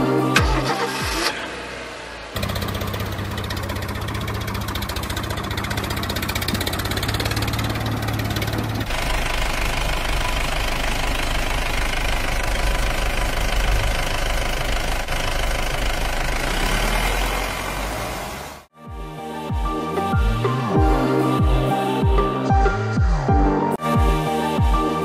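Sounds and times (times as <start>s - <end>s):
heavy vehicle engine knocking: 2.4s - 16.4s.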